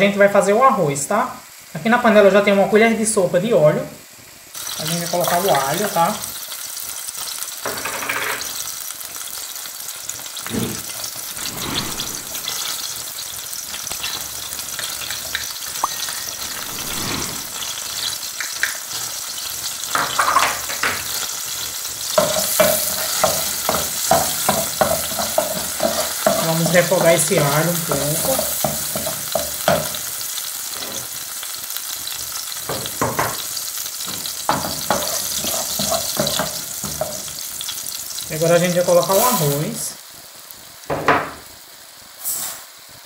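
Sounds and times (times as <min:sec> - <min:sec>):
garlic sizzling in hot oil: 0:00.0 - 0:43.0.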